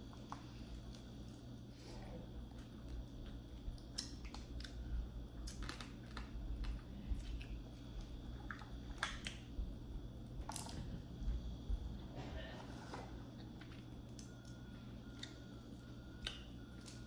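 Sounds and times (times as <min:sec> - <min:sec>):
chewing: 0:02.4 - 0:09.5.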